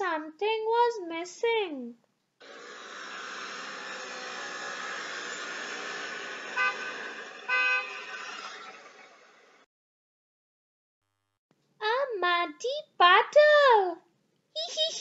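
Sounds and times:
car engine running: 2.4 - 9.6
car horn beeps: 6.5 - 8.2.

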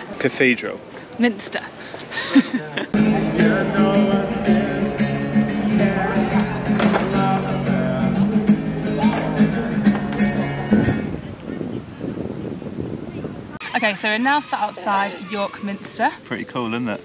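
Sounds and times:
guitar music with steady beat: 2.9 - 11.2.

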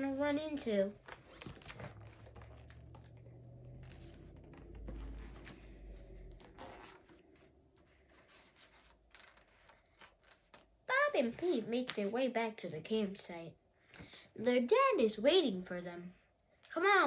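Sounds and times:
paper pages rustling: 0.1 - 12.2
soft bumps of book handling: 1.0 - 10.6.

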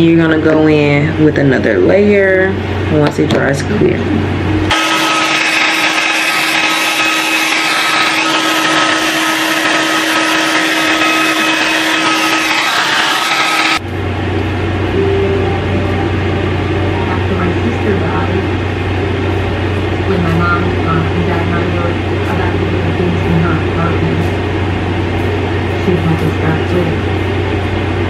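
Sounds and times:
low steady hum: 0.0 - 4.7, 13.8 - 28.0
hair dryer running: 4.6 - 15.0.

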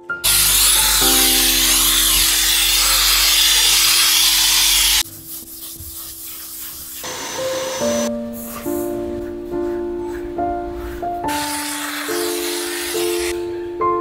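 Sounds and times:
steam cleaner hissing: 0.2 - 8.9, 11.2 - 13.4.

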